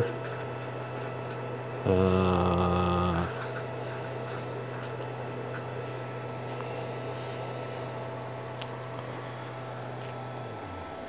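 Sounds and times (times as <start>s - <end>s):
man humming: 0.0s - 0.2s, 1.8s - 3.5s
steady low hum: 0.0s - 11.0s
marker writing on paper: 3.3s - 5.7s.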